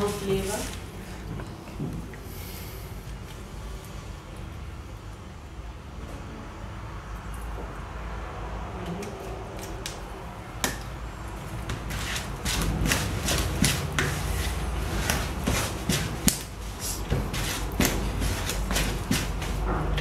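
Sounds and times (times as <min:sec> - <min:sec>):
wooden spoon beating batter in bowl: 0:10.6 - 0:20.0.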